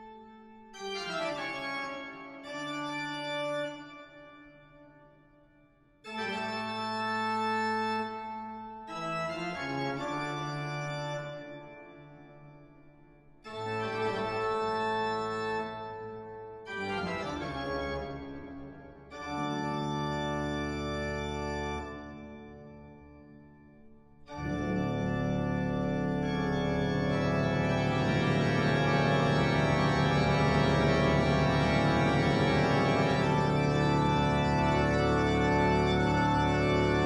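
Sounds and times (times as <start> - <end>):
organ chords: 0.0 - 4.4, 6.0 - 12.3, 13.5 - 23.4, 24.3 - 37.0.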